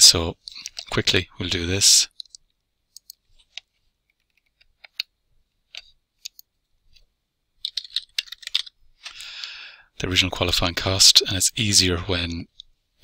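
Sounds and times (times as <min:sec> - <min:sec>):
computer mouse clicks: 0:02.2 - 0:05.1.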